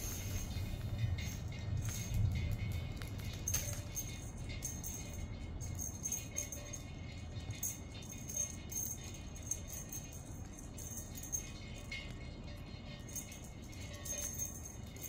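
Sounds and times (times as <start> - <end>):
high-pitched rattling jingles: 0.0 - 15.0.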